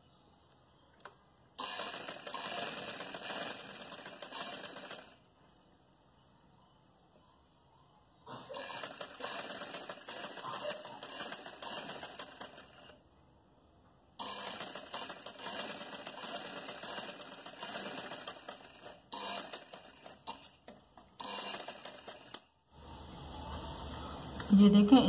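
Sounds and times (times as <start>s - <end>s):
sewing machine stitching: 1.6s - 5.2s, 8.5s - 13.0s, 14.2s - 20.6s, 21.2s - 22.4s.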